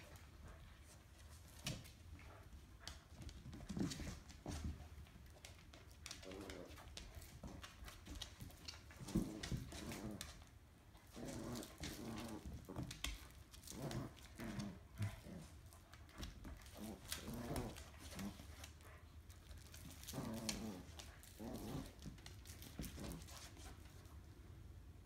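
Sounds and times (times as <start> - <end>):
dogs growling playfully: 0.0 - 23.7
dog claws clicking on floor: 11.1 - 24.0.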